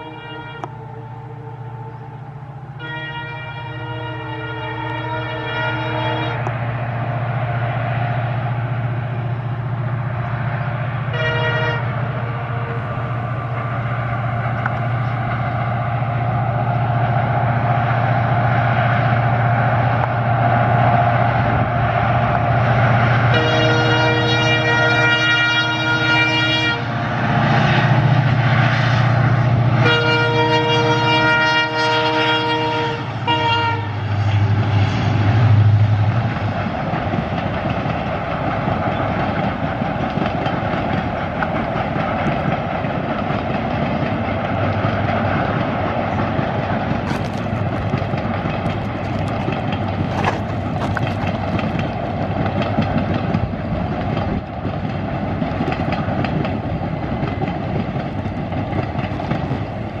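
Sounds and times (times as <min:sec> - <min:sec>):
locomotive horn chord: 0:00.0 - 0:07.3, 0:10.5 - 0:13.6, 0:23.2 - 0:27.0, 0:29.8 - 0:34.1
low engine drone: 0:00.0 - 0:23.7
train coaches rumbling on track: 0:00.0 - 1:00.0.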